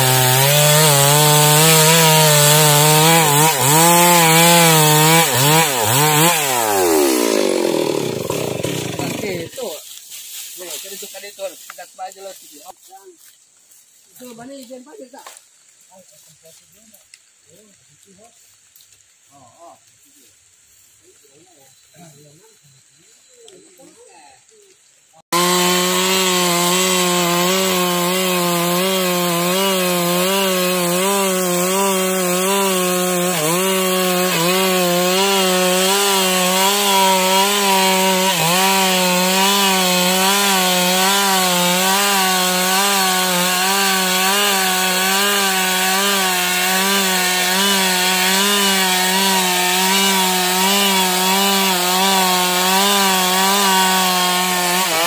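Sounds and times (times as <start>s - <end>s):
chainsaw cutting through log: 0.0s - 9.7s, 25.2s - 55.0s.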